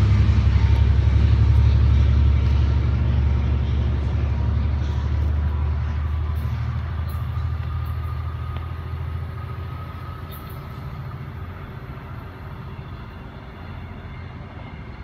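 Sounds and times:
diesel train rumble: 0.0 - 15.0.

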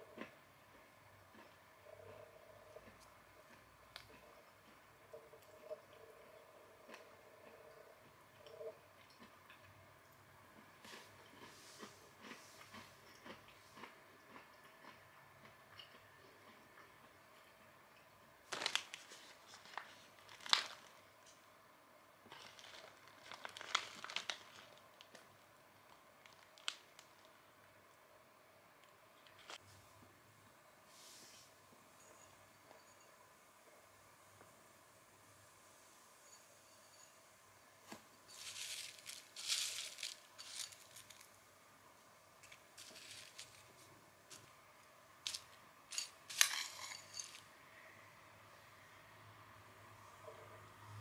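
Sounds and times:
plastic snack bag crinkling: 18.4 - 21.0, 22.3 - 25.3, 25.9 - 27.4, 38.3 - 41.4, 42.4 - 44.5, 45.2 - 47.4.

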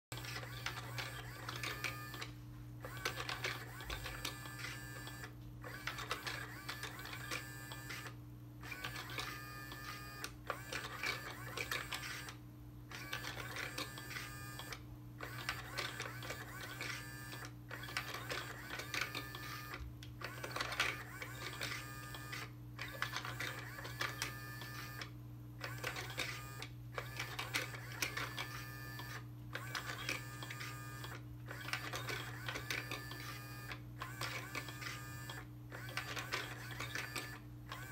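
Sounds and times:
toy motor whirring and clicking: 0.1 - 37.9.

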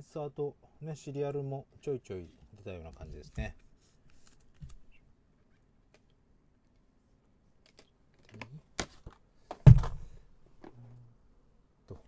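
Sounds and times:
loud knock: 9.6 - 10.1.

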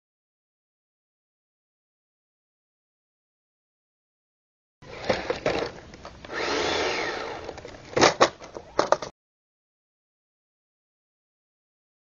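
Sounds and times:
small electric motor whirring: 6.3 - 7.6
toy truck clicks and knocks: 7.4 - 9.1.

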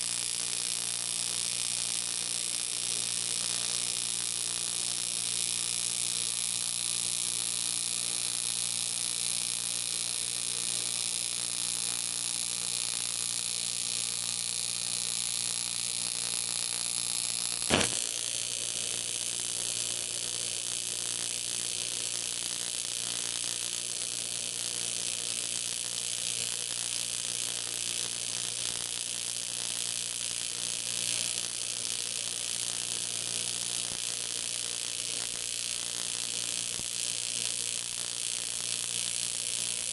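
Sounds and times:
welding arc hissing: 0.0 - 39.9
electrical hum: 16.3 - 18.6
sharp crack: 17.6 - 18.1.

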